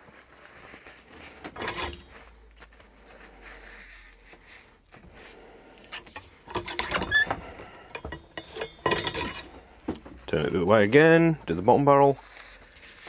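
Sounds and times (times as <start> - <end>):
scraping and rattling: 0.7 - 2.4, 6.0 - 10.3.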